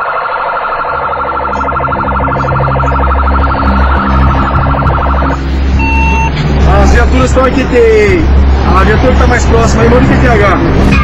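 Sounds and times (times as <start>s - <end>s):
police siren wailing: 0.0s - 11.0s
low rumble: 0.9s - 11.0s.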